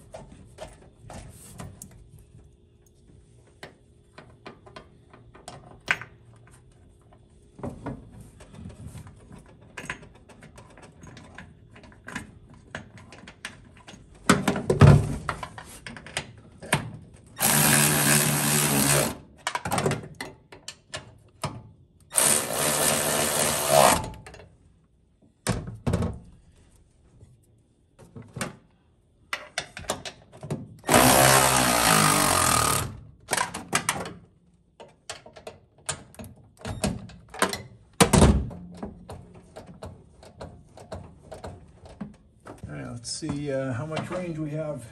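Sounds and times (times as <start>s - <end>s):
cordless ratchet running: 17.4s - 19.2s.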